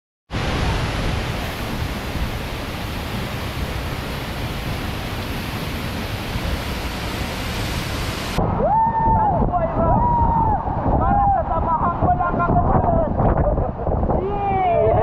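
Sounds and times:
waterfall rushing: 0:00.3 - 0:08.7.

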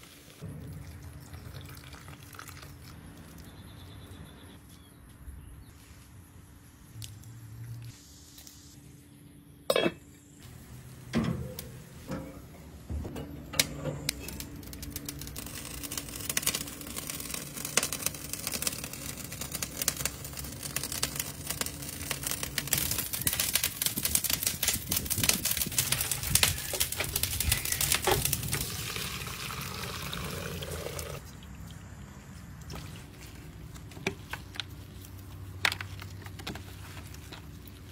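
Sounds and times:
liquid bubbling and sizzling: 0:10.3 - 0:37.9.

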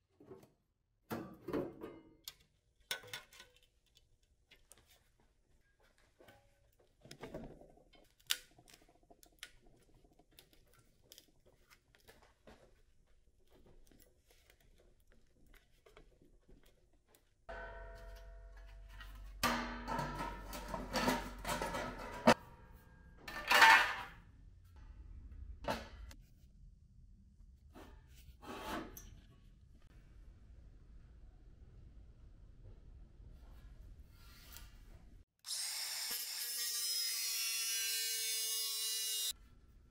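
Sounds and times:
clattering metal knocks: 0:17.5 - 0:22.4.

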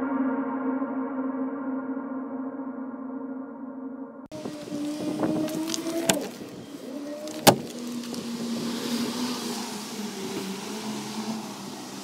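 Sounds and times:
vehicle engine running: 0:04.3 - 0:10.7.

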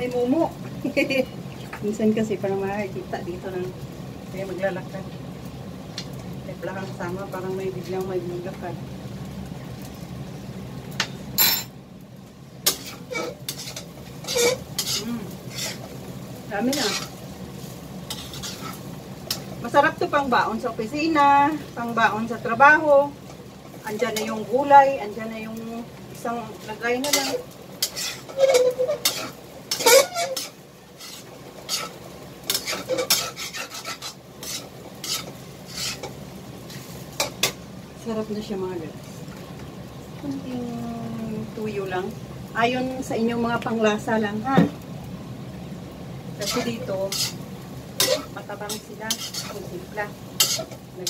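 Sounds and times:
faint sizzle: 0:00.0 - 0:51.0
metal spoon scraping a pan: 0:12.6 - 0:19.5, 0:23.7 - 0:24.5, 0:26.6 - 0:37.6, 0:46.4 - 0:51.0.

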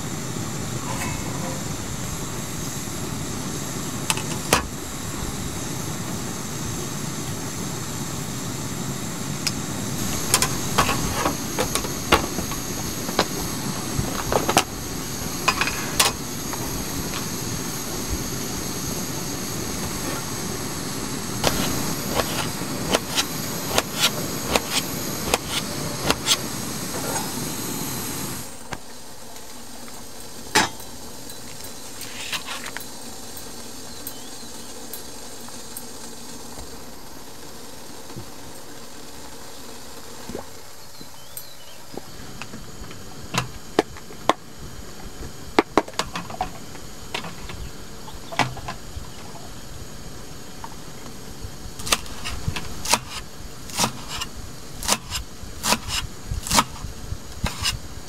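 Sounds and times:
gas stove burner rushing: 0:00.0 - 0:36.6, 0:51.6 - 0:58.0.

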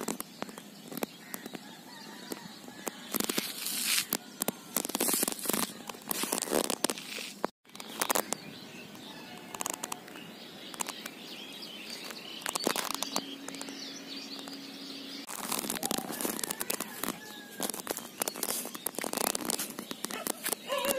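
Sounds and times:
crackling and rustling clicks: 0:00.0 - 0:14.6, 0:15.2 - 0:20.9
birds chirping: 0:00.0 - 0:20.9
steady low hum: 0:11.4 - 0:16.1.

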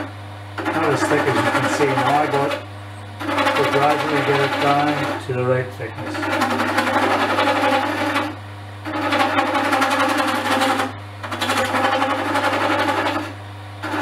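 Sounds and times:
low hum: 0:00.0 - 0:08.9
chisel cutting wood on lathe: 0:00.0 - 0:14.0.

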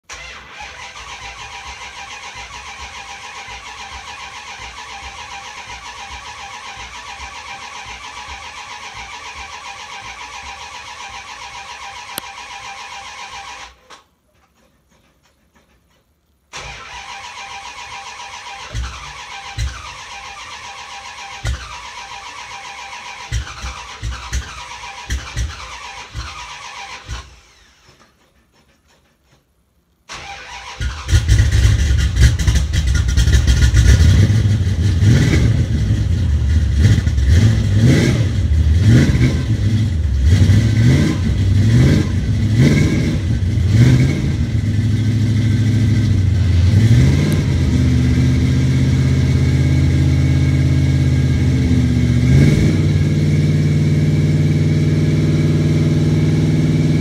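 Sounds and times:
car starter cranking: 0:00.0 - 0:53.3
engine firing in low thuds: 0:31.1 - 0:57.0.

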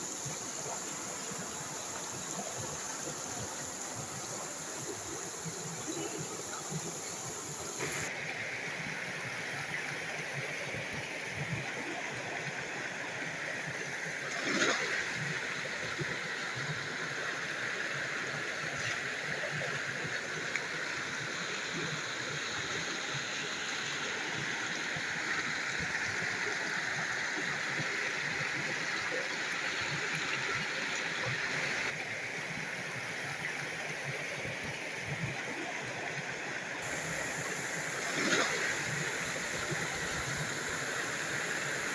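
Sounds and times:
stream flowing over rocks: 0:00.0 - 0:41.9.

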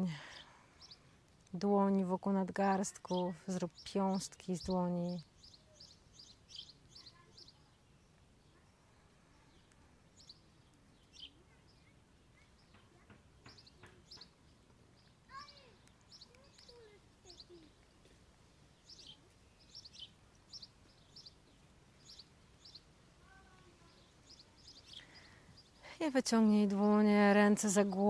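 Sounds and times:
faint background hiss: 0:00.0 - 0:28.0
high bird chirps: 0:03.1 - 0:08.7, 0:09.4 - 0:17.9, 0:18.8 - 0:25.8.

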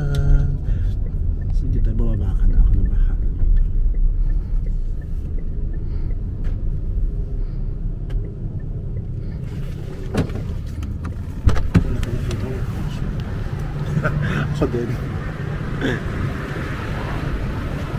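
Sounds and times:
car engine and tyres rumbling: 0:00.0 - 0:17.9.

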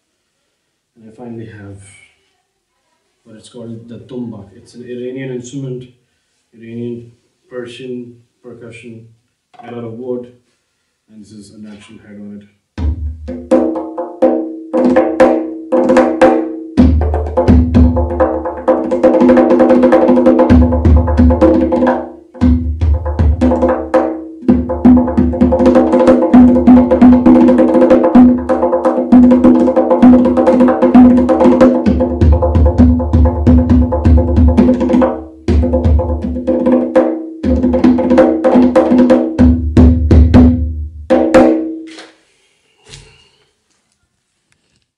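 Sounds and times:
hand drum playing fast rhythms: 0:12.8 - 0:41.8.

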